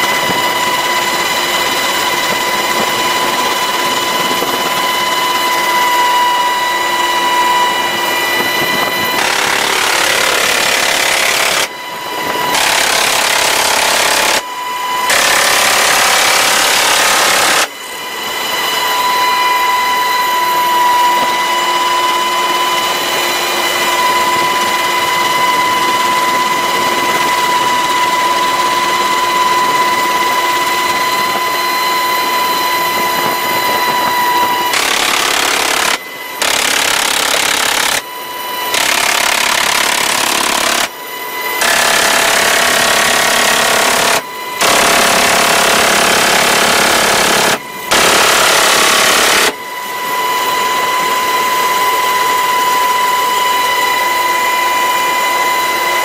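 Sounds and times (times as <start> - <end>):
helicopter noise with high whine: 0.0 - 56.0
minigun firing bursts: 9.2 - 11.7, 34.7 - 38.0, 41.6 - 49.6.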